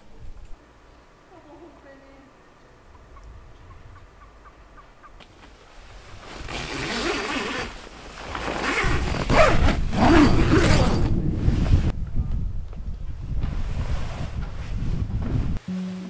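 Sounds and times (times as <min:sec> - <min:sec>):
wind buffeting microphone: 0:03.0 - 0:04.7, 0:08.8 - 0:15.6
tent fabric rustling and zipping: 0:05.7 - 0:11.9.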